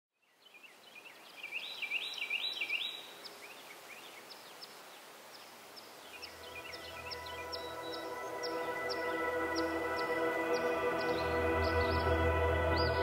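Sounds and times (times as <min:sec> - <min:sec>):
birds chirping: 0:00.2 - 0:13.0
soft music with held tones: 0:06.1 - 0:13.0.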